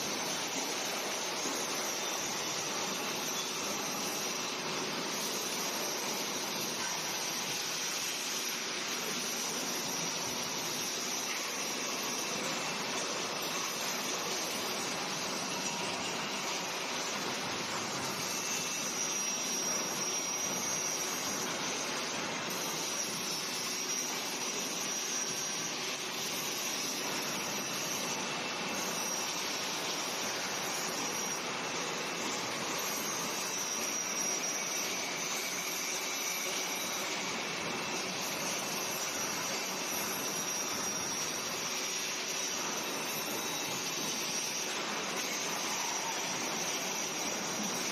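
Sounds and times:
angle grinder grinding steel: 32.0s - 47.9s.

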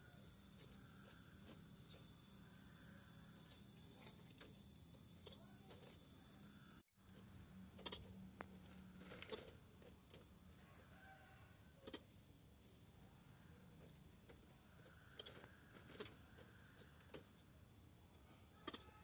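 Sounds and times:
squirrel claws clicking on mesh: 14.2s - 17.3s.

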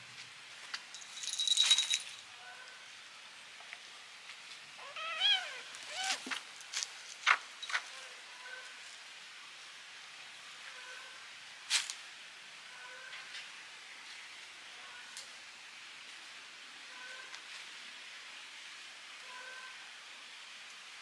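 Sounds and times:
kittens scuffling: 0.6s - 2.2s, 5.7s - 7.9s
kitten mewing: 4.8s - 6.3s.

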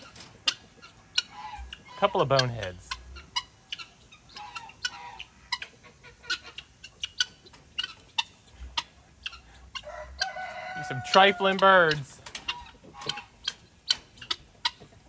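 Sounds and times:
guinea fowl calls and clucks: 0.0s - 15.0s
rooster crowing: 9.8s - 11.8s.

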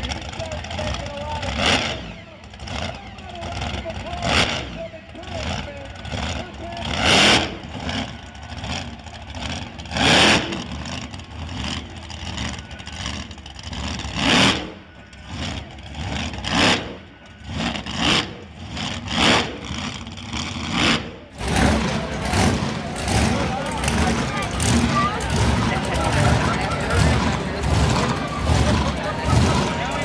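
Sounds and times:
engine rough lumpy idle: 0.0s - 30.0s
engine revving sharply: 0.7s - 30.0s.

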